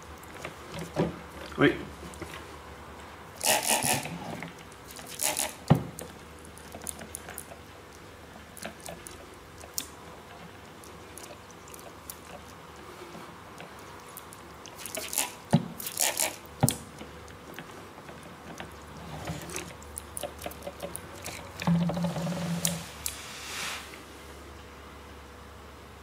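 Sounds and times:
spray bottle squirting: 0:03.4 - 0:04.1, 0:05.0 - 0:05.6, 0:14.8 - 0:16.4.

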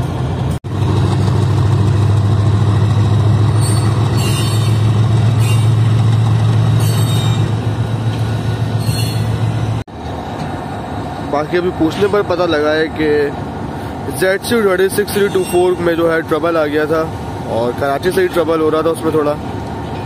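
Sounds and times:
locomotive engine drone: 0:00.0 - 0:20.0
high-pitched squeals: 0:03.5 - 0:06.0, 0:06.7 - 0:09.7.

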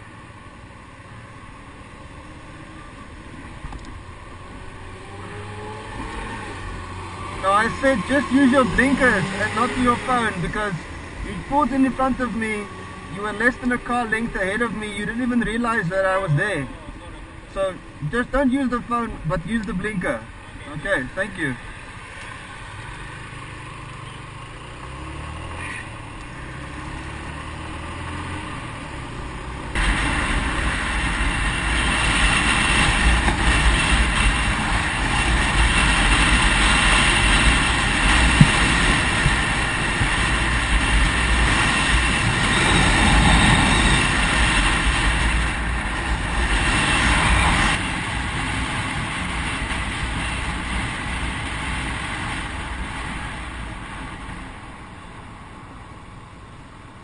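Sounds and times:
motorcycle engine accelerating: 0:02.1 - 0:14.8, 0:22.0 - 0:54.0
wind noise on microphone: 0:29.8 - 0:54.7.

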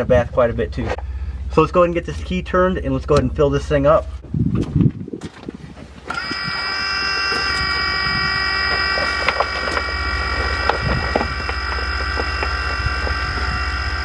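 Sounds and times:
low hum: 0:00.0 - 0:14.0
electric pump whine: 0:06.0 - 0:14.0.

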